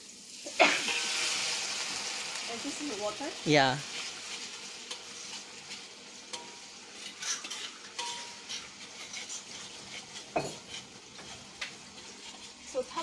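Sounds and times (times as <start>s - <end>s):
chili paste sizzling in a wok: 0.0s - 13.0s
spatula scraping a pan: 0.7s - 1.4s, 3.9s - 13.0s.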